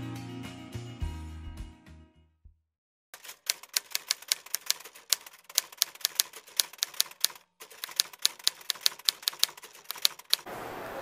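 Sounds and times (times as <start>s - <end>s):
typewriter key clacks: 3.2s - 10.5s.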